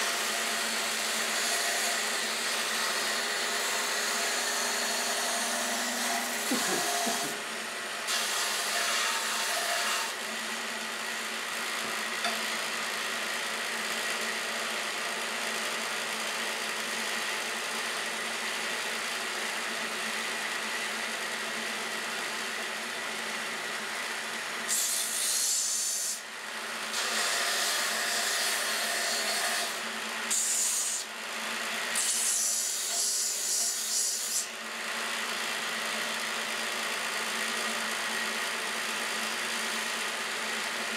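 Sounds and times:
saw blade cutting wood: 0:00.0 - 0:10.2, 0:24.6 - 0:26.3, 0:26.9 - 0:31.1, 0:31.8 - 0:34.5
band saw motor hum: 0:00.0 - 0:40.9.

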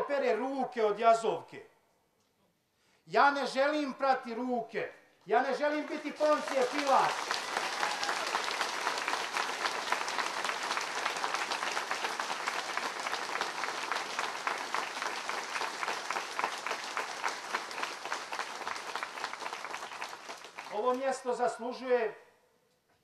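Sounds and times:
crowd applauding: 0:05.7 - 0:21.3.

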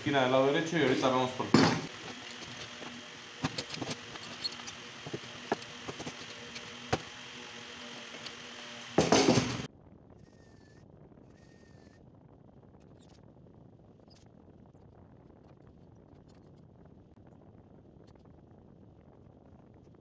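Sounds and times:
steady hiss: 0:00.0 - 0:09.7
clamp clicks and knocks: 0:01.5 - 0:09.7.

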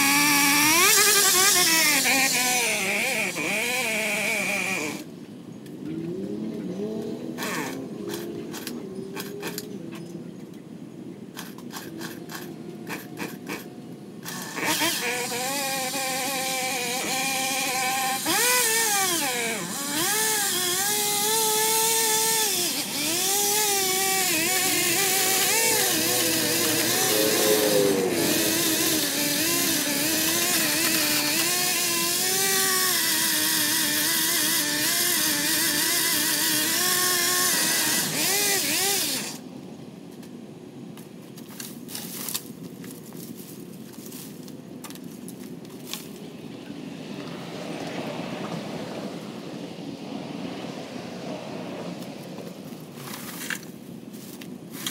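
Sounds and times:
pole saw engine revving: 0:00.0 - 0:05.1, 0:05.8 - 0:09.7, 0:11.4 - 0:39.4.

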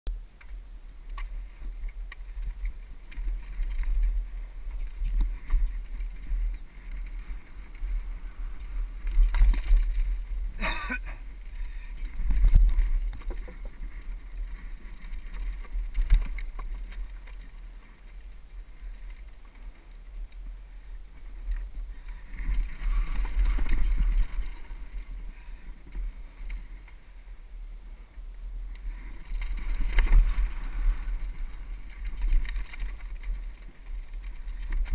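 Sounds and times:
wind rumble on microphone: 0:00.1 - 0:34.9
bike rattling over rough ground: 0:00.2 - 0:34.9
wheels knocking on rocks and boards: 0:00.4 - 0:10.6, 0:11.4 - 0:20.0, 0:28.8 - 0:34.9.

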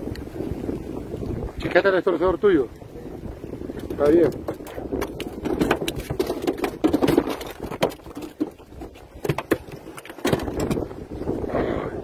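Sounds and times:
fish flopping on boat deck: 0:03.6 - 0:11.3.

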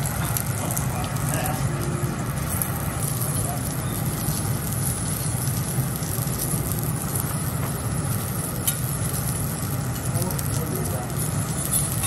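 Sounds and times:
food sizzling on griddle: 0:00.0 - 0:12.0.

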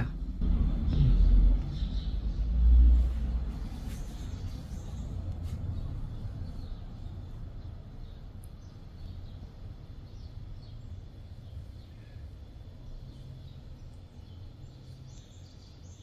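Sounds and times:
low rumble: 0:00.0 - 0:08.5.

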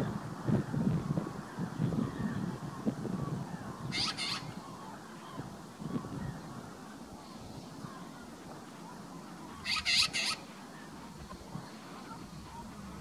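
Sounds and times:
magpie harsh calls: 0:03.9 - 0:04.6, 0:09.6 - 0:10.5.

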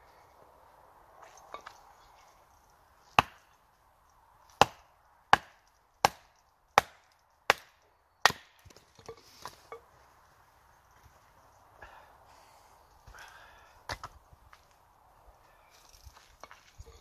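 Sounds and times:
hatchet chopping firewood: 0:03.0 - 0:03.7, 0:04.4 - 0:09.8.

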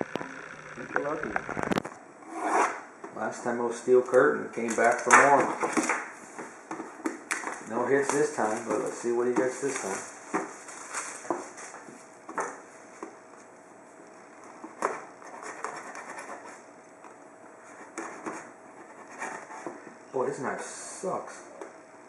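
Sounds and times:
knife scraping cardboard: 0:14.8 - 0:16.6, 0:17.6 - 0:19.8.

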